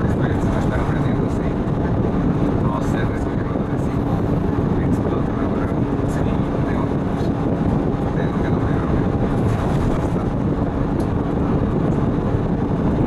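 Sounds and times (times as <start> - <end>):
bus engine and road noise: 0.0 - 13.0.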